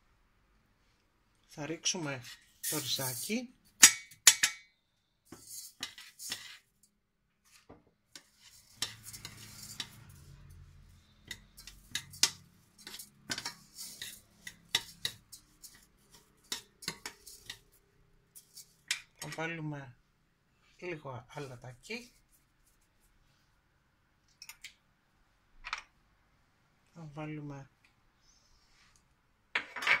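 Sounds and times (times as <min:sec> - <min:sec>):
metal spoon scraping saucepan: 0:02.2 - 0:03.4, 0:05.3 - 0:06.7, 0:08.1 - 0:19.4.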